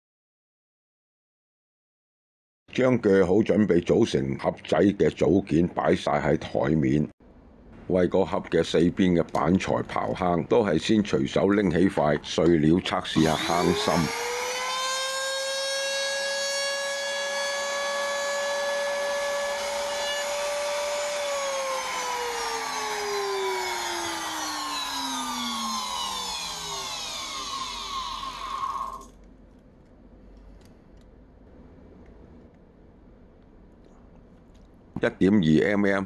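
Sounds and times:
electric router high whine: 13.1 - 29.1.

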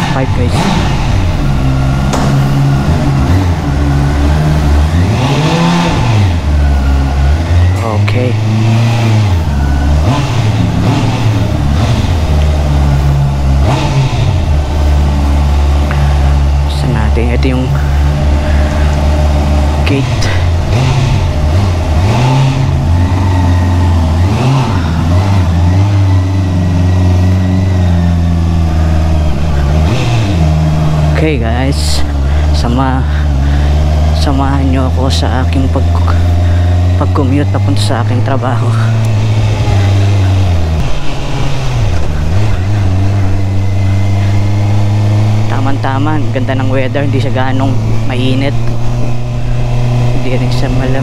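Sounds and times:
engine throttle blip: 0.0 - 32.5
motorcycle engine idling: 0.0 - 51.0.

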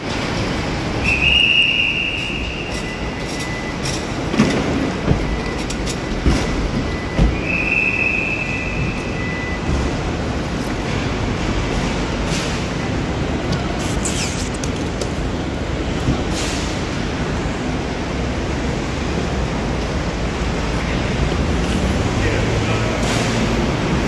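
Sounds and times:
traffic hum: 0.0 - 24.0
luggage trolleys rattling over pavement: 2.0 - 9.2.

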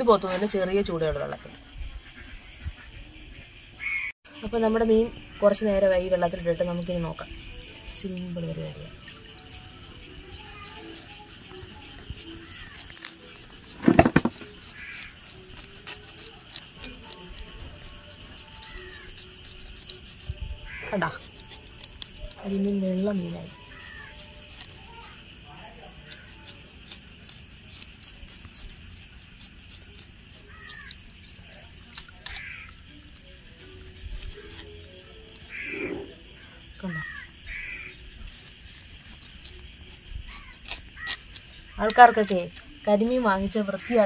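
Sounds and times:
high insect trill: 0.0 - 44.0
bird calling: 1.8 - 4.2, 4.9 - 21.6, 22.2 - 25.2, 29.8 - 38.7
knife scraping fish skin: 9.9 - 25.2, 25.8 - 35.5, 37.1 - 44.0.

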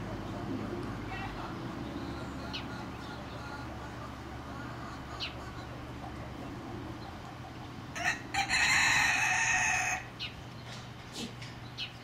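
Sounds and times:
rooster crowing: 7.9 - 10.2.

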